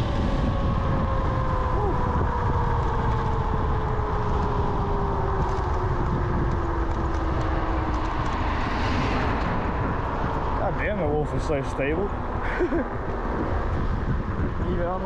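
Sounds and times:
wind and road noise: 0.0s - 15.0s.

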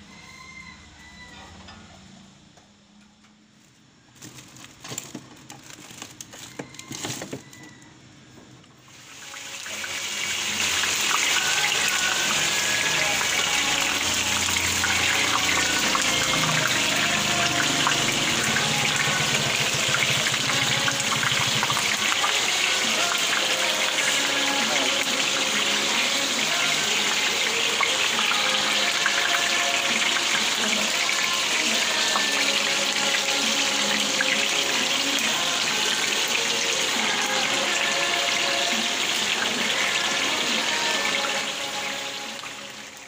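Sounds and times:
fish sizzling in hot oil: 8.8s - 43.0s.

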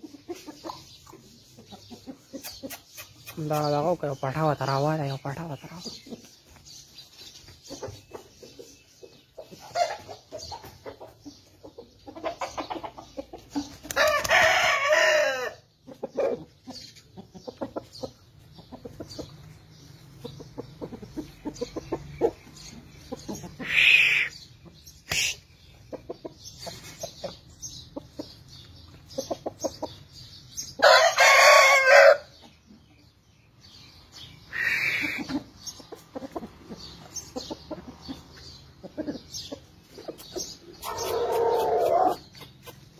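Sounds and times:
rooster crowing: 30.8s - 32.2s.

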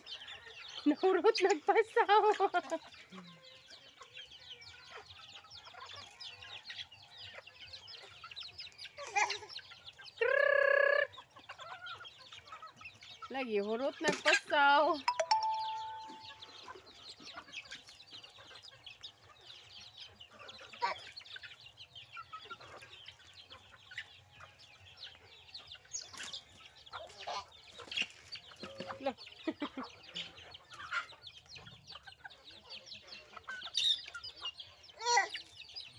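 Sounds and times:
chickens clucking and peeping: 0.0s - 35.9s.

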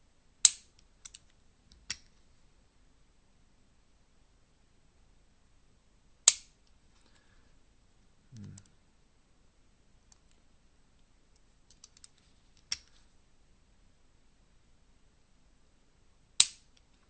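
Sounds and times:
metallic trigger snap: 16.4s - 16.6s.

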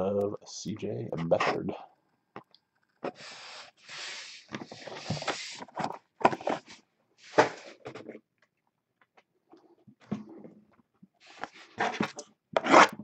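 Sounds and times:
cards rustling and sliding: 3.0s - 8.0s, 11.2s - 13.0s.

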